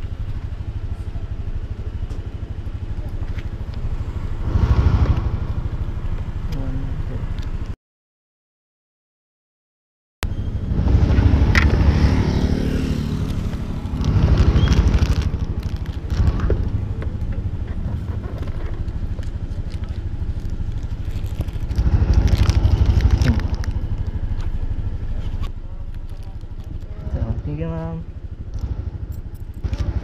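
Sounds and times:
scooter engine idling: 0:00.0 - 0:07.7, 0:11.3 - 0:30.0
handling rustling and clicks: 0:14.0 - 0:26.9.

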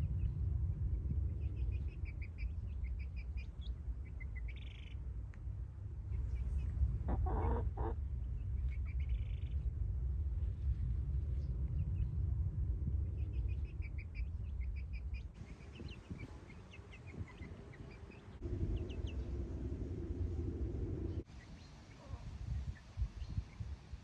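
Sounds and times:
low rumble: 0:00.0 - 0:21.3
birds chirping: 0:13.1 - 0:23.7.

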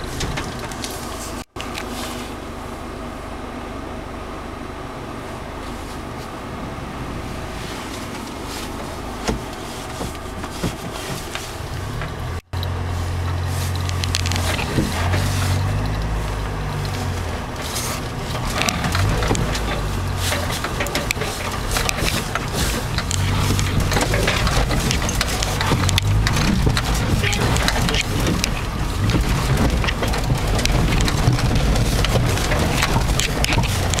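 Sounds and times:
knocks and rattles: 0:00.0 - 0:01.4, 0:13.2 - 0:34.0
car engine running: 0:00.0 - 0:34.0
heavy low rumble: 0:11.6 - 0:34.0.

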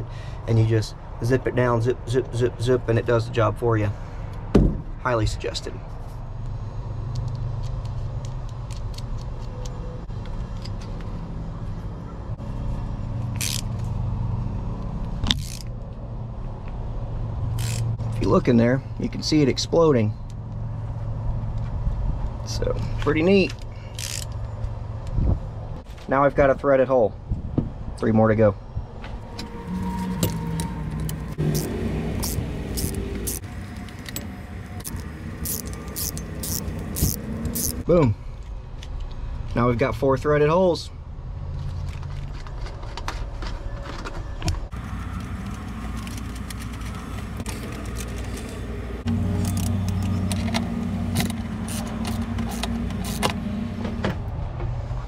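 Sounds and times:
ratchet clicking: 0:13.4 - 0:13.8, 0:15.3 - 0:15.7, 0:17.6 - 0:17.9, 0:23.9 - 0:24.4, 0:30.6 - 0:37.8, 0:51.2 - 0:53.4
low motor hum: 0:28.8 - 0:37.9, 0:44.7 - 0:55.0.

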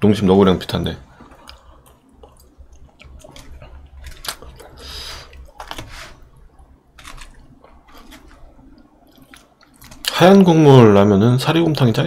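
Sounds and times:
person chewing: 0:01.2 - 0:10.2.

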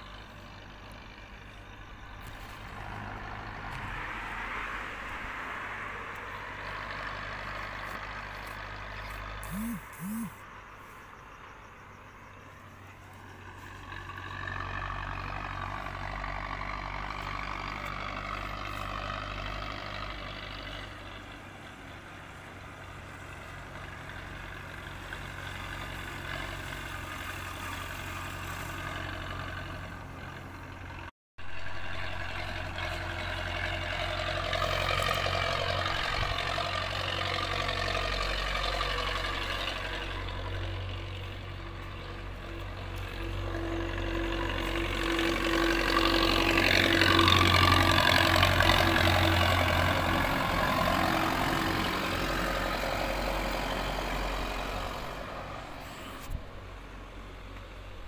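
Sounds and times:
truck engine rumbling: 0:00.0 - 0:58.0
wavering high whine: 0:09.4 - 0:10.4.

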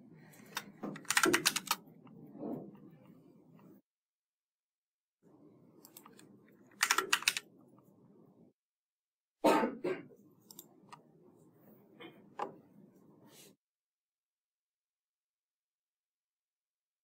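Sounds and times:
typing on computer keyboard: 0:00.4 - 0:01.8, 0:05.9 - 0:07.5.

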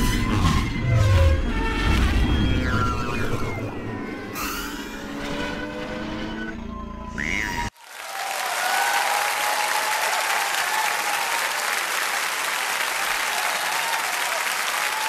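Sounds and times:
crowd applauding: 0:07.7 - 0:15.0.

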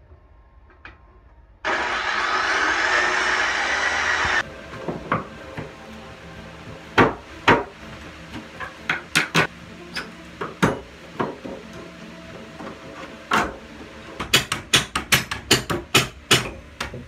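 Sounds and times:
power tool running: 0:01.6 - 0:04.5.

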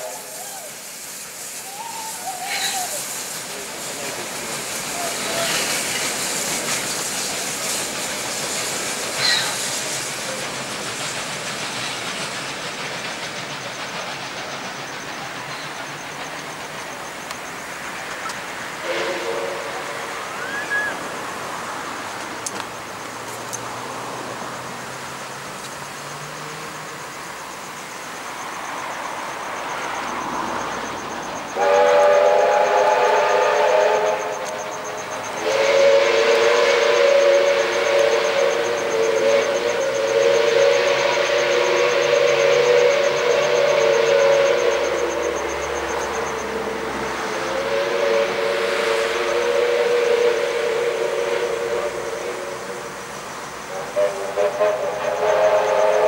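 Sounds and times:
rail noise: 0:00.0 - 0:56.0
steam hissing: 0:00.0 - 0:56.0
train running noise: 0:00.0 - 0:56.0
high squeal: 0:20.2 - 0:21.1.

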